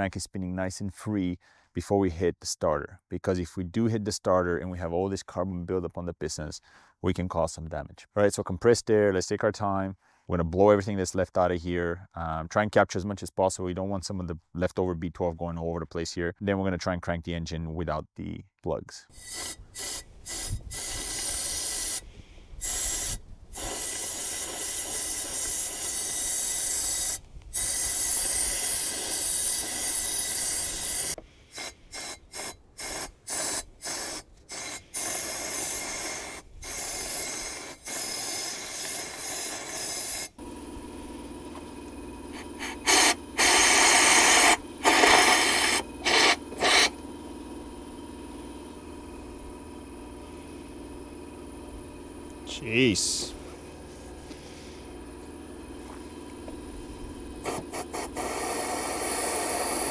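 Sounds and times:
compressed air blow gun hissing: 0:19.1 - 0:40.4, 0:42.2 - 0:59.9.

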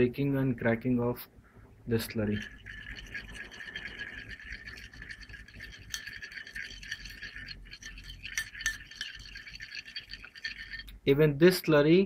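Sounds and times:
metal spoon scraping glass dish: 0:02.1 - 0:11.0.

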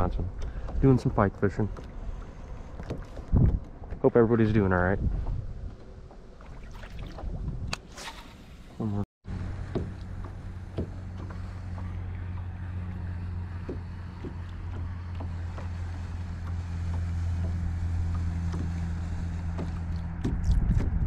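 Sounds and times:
small motor humming: 0:07.9 - 0:20.1.

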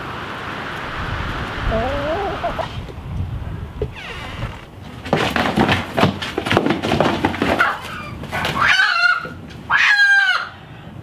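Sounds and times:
hen squawking: 0:01.7 - 0:02.8, 0:07.6 - 0:10.6
hen scuffling in cardboard box: 0:04.8 - 0:08.6.

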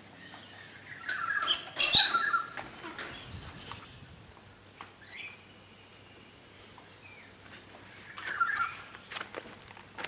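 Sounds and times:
birds squawking and chirping: 0:00.0 - 0:09.0.

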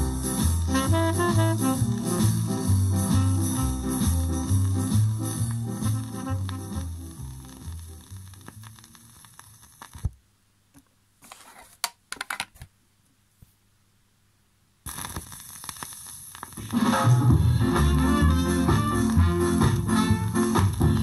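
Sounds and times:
ska record playing: 0:00.0 - 0:10.1, 0:14.9 - 0:21.0
stylus hiss and crackle: 0:00.0 - 0:10.2, 0:14.8 - 0:21.0.

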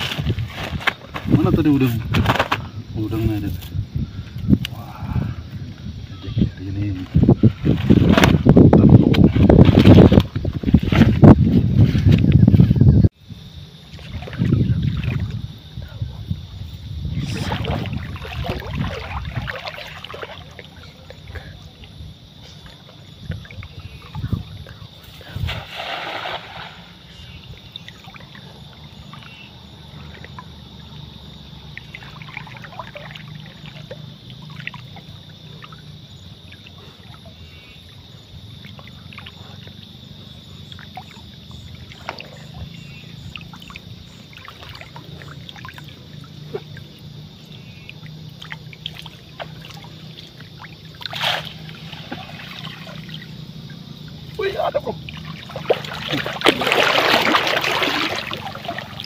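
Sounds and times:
net splashing out of water: 0:07.5 - 0:08.6, 0:14.0 - 0:15.3, 0:17.3 - 0:20.7, 0:25.3 - 0:27.2, 0:50.5 - 0:53.3, 0:54.3 - 0:59.0
water trickling and dripping: 0:27.4 - 0:59.0.

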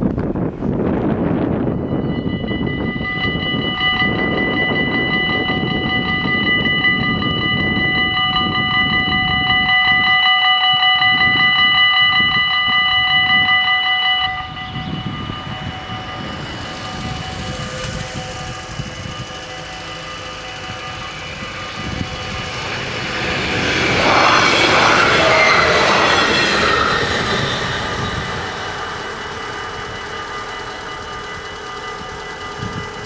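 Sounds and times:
wind buffeting microphone: 0:00.0 - 0:33.0
level crossing warning bells: 0:01.0 - 0:33.0.

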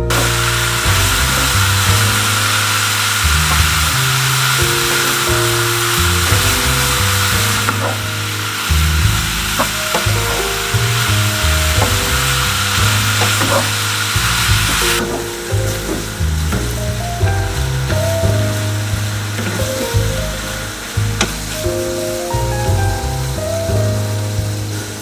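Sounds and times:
background music: 0:00.0 - 0:25.0
meat sizzling in a pan: 0:00.1 - 0:16.8, 0:17.8 - 0:25.0.

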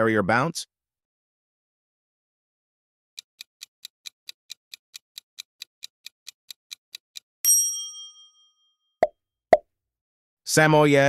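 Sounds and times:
clock ticking: 0:03.2 - 0:07.3.

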